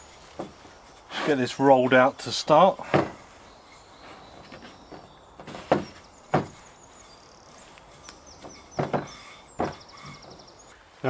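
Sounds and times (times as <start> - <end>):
sharp wooden knocks: 2.8 - 3.3, 4.0 - 6.7, 8.4 - 10.7
rolling pin rolling dough: 8.0 - 10.6.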